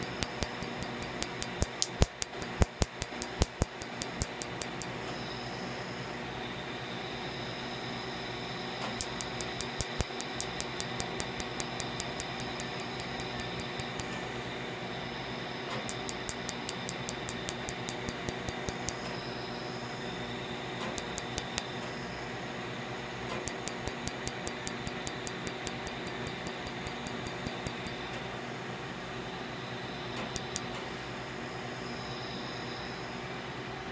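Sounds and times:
laser snapping pulses: 0.0 - 5.0, 8.8 - 14.2, 15.7 - 19.1, 20.8 - 21.7, 23.3 - 28.2
steady background hum: 0.0 - 33.9.

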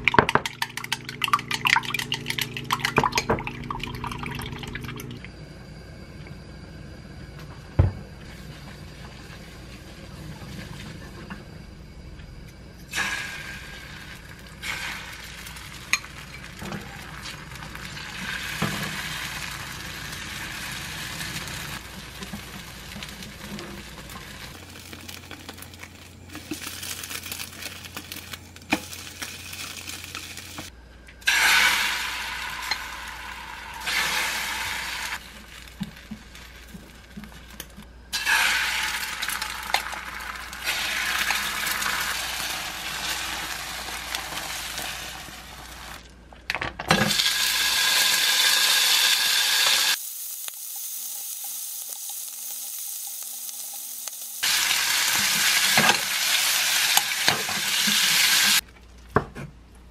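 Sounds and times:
egg sizzling in hot oil: 12.9 - 46.0, 47.1 - 58.6.

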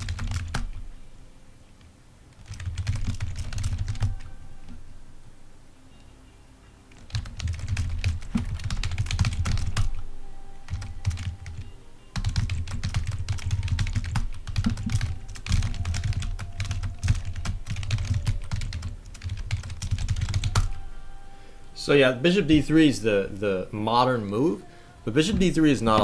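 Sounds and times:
rapid typing on computer keyboard: 0.0 - 0.9, 2.4 - 4.8, 6.9 - 10.0, 10.6 - 20.8.

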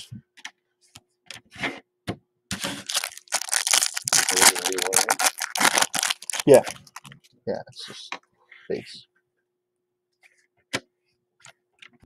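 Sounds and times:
foil wrapper crinkling and tearing: 2.6 - 7.1.

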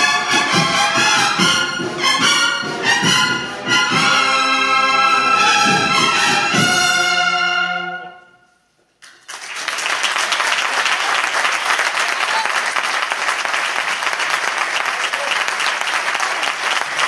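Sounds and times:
cornet and drum band march: 0.0 - 7.8
audience applause: 9.0 - 17.0.

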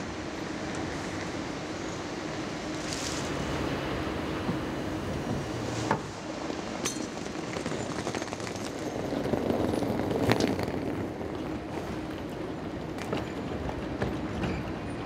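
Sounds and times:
steady wash of noise: 0.0 - 7.9.

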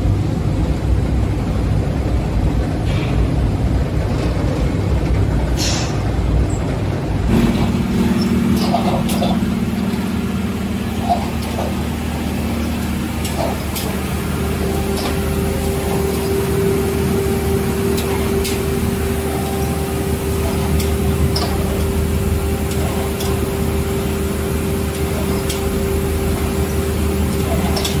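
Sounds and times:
textile machine humming: 0.0 - 28.0
constant mid-pitched tone: 7.2 - 28.0.

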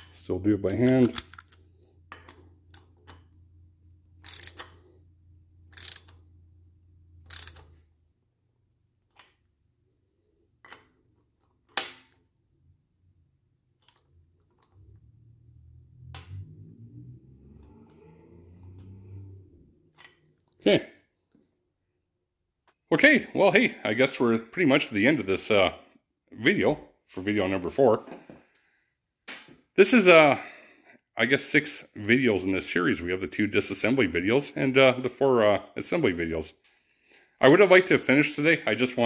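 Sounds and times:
ratchet clicking: 4.2 - 4.9, 5.6 - 6.3, 7.2 - 7.7.

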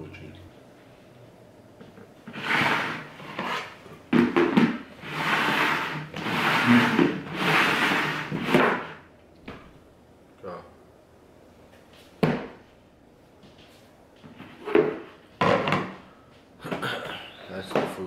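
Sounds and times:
plastic bowls scraping on wood: 2.2 - 9.0.

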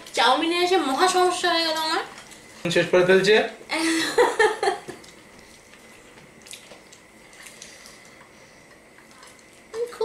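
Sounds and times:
person laughing: 3.8 - 5.0
soft wet chewing: 4.9 - 10.0.

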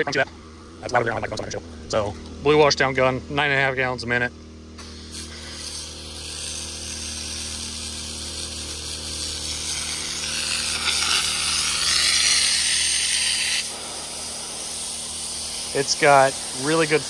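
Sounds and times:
water jet hissing and splashing: 4.8 - 17.0.

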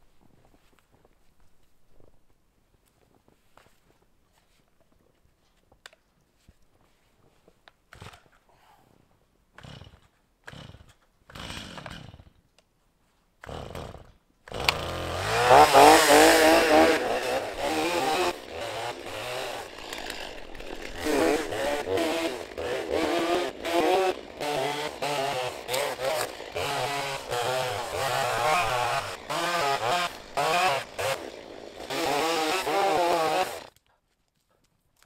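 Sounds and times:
chainsaw engine idling and revving: 9.6 - 12.4, 13.4 - 33.7.

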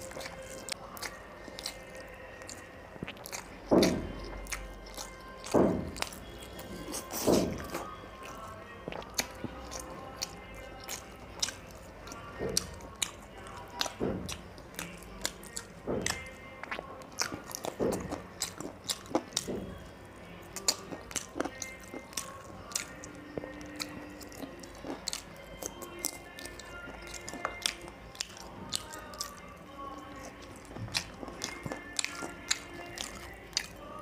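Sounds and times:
wet chewing and biting: 0.0 - 34.0
mouth smacks and clicks: 20.6 - 33.9.

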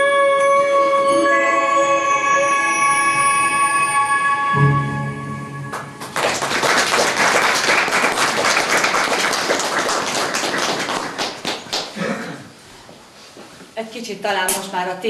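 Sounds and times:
audience applauding: 5.7 - 12.0.

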